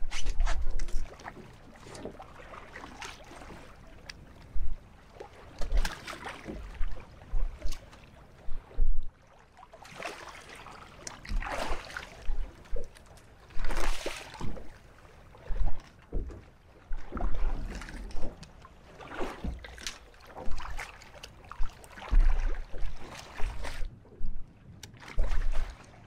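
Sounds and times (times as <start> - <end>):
water splashing against boat hull: 0.0 - 26.0
wind rumbling on microphone: 4.2 - 9.2.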